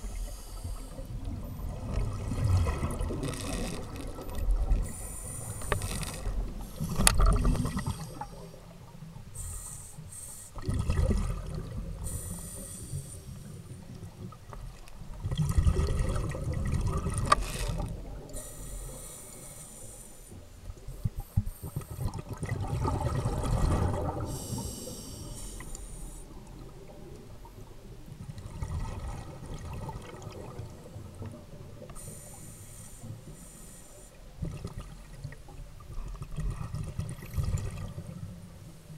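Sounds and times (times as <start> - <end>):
diver breathing through regulator: 0.0 - 1.7, 4.8 - 8.5, 9.4 - 10.6, 12.0 - 13.6, 17.6 - 20.4, 24.2 - 26.4, 32.0 - 34.2
rushes of exhaled bubbles: 0.0 - 8.7, 10.6 - 12.2, 15.1 - 18.4, 21.6 - 24.7, 28.2 - 31.8, 36.0 - 38.3
high hiss: 12.0 - 13.5, 24.3 - 26.4.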